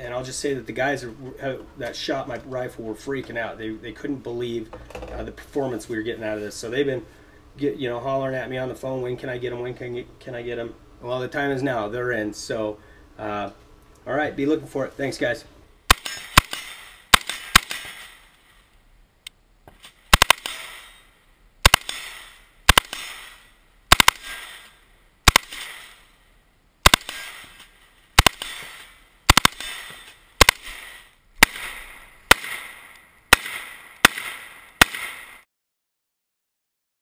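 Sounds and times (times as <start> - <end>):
rifle shots echoing: 15.9 - 18.4, 20.1 - 26.2, 26.8 - 35.4.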